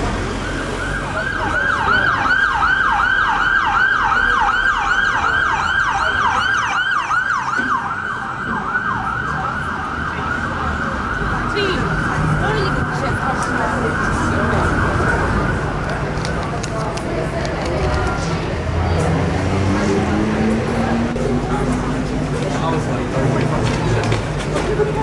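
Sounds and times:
traffic noise: 0.0s - 25.0s
siren yelping: 0.3s - 15.8s.

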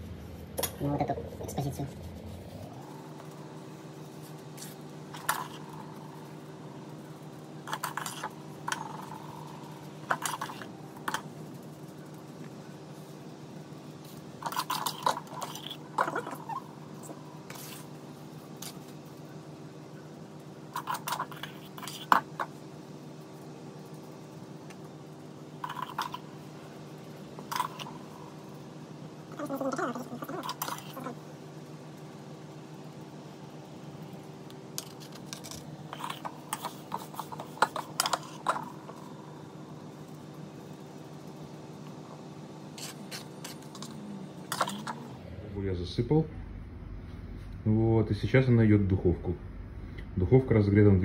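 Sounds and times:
low mechanical hum: 0.0s - 51.0s.

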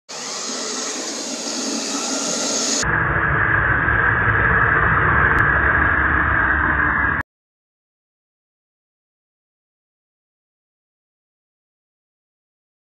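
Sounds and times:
electric motor whine: 0.1s - 2.8s.

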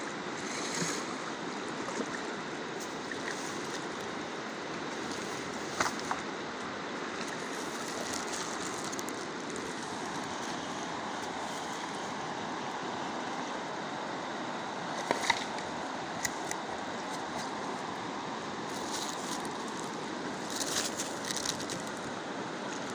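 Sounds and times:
fast river flowing: 0.0s - 22.9s
fish flopping on dry grass: 18.7s - 22.0s.

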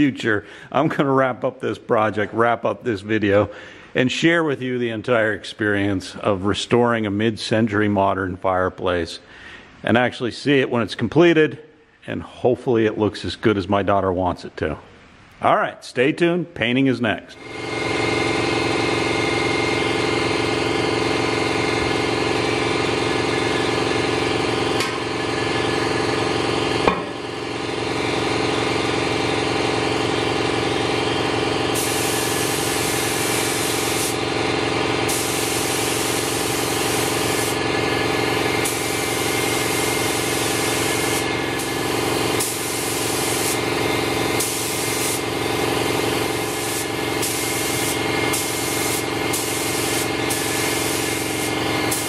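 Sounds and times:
air spray gun hissing: 17.4s - 52.0s
steady motor hum: 17.4s - 52.0s
sharp knock: 26.8s - 27.2s.

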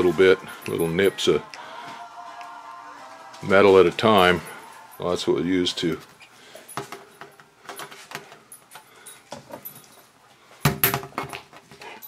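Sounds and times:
metallic clicks and clinks: 0.0s - 1.5s, 5.8s - 10.1s.

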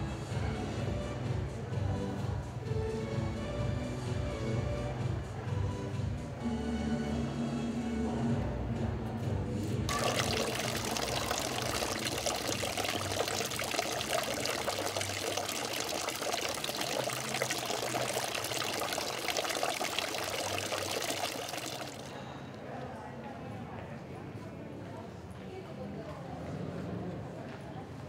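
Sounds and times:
fountain water splashing into basin: 9.9s - 22.2s.

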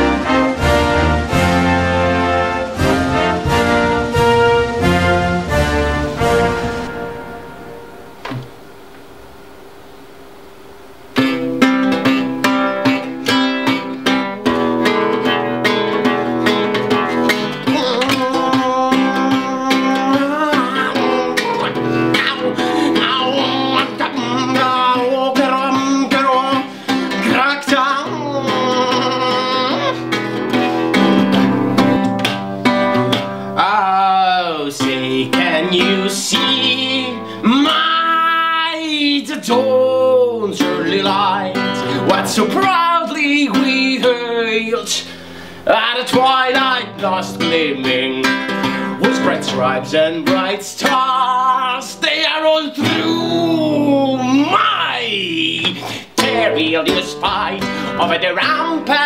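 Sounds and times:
acoustic guitar strumming: 0.0s - 59.0s
loud sustained music chords: 0.2s - 14.7s
man singing: 11.2s - 32.0s, 33.6s - 59.0s.

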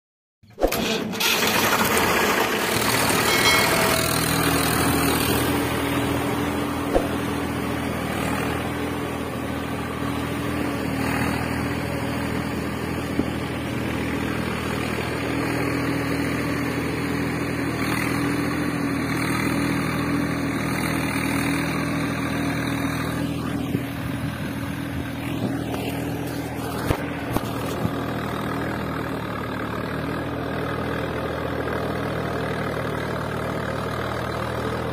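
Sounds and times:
engine idling: 21.6s - 34.9s.

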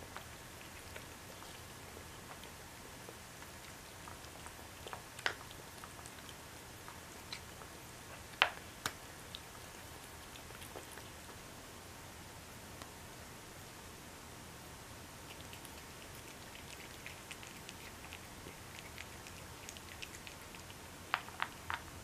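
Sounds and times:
cat chewing food: 0.0s - 11.5s, 15.2s - 22.0s.

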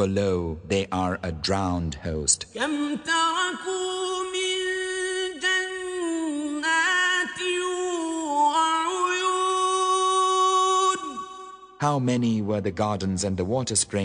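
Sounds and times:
man chanting melodically: 0.0s - 3.6s, 11.8s - 14.0s.

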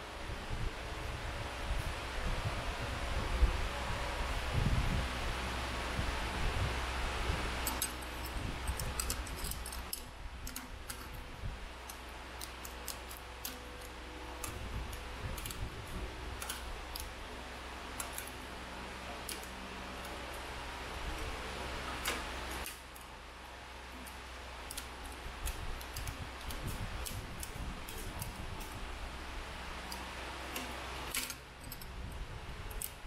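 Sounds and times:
small metal clicks and taps: 7.6s - 11.2s, 16.4s - 17.1s, 29.9s - 31.9s.

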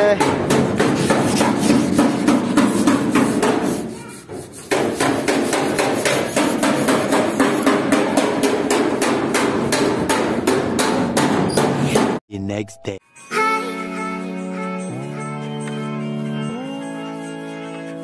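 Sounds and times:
knocking on metal panel: 0.2s - 3.7s, 4.7s - 12.2s.

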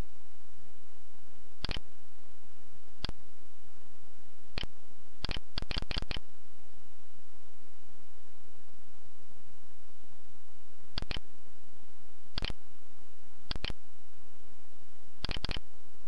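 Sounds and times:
computer mouse clicking: 1.6s - 1.8s, 4.6s - 6.2s, 11.0s - 11.2s, 12.4s - 12.6s, 13.5s - 13.8s, 15.2s - 15.6s.

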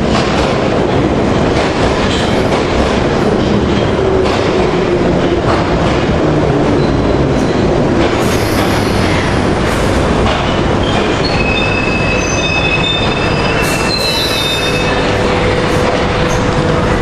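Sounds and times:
train wheels rumbling on rail: 0.0s - 17.0s
high wheel squeals: 10.9s - 15.2s.

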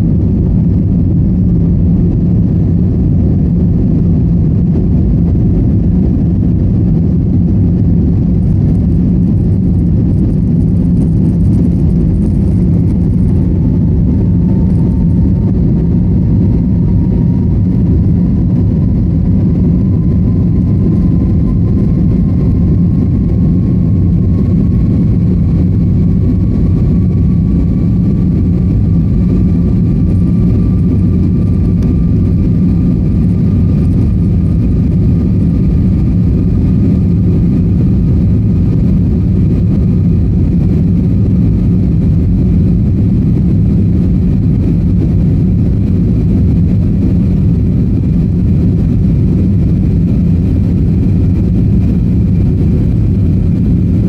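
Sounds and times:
airliner cabin engine rumble: 0.0s - 54.0s
faint rising whine: 0.0s - 54.0s.

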